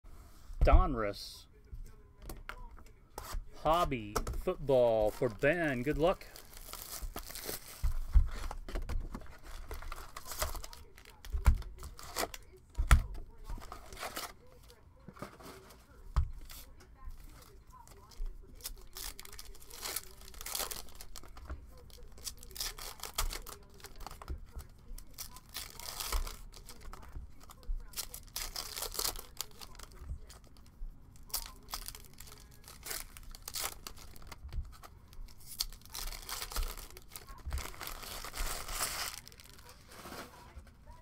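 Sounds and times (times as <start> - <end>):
foil packs tearing and crinkling: 4.9 - 8.6, 9.2 - 12.6, 13.5 - 14.8, 16.5 - 30.4, 31.2 - 40.6.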